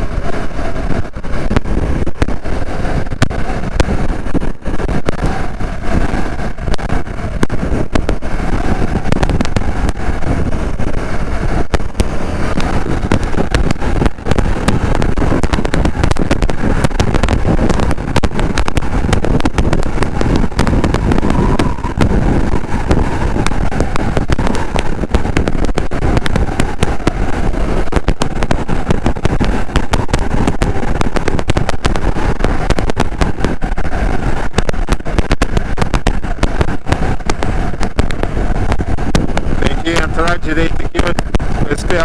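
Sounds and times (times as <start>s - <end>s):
motorcycle engine running: 0.0s - 42.0s
wind rushing on microphone: 0.0s - 42.0s.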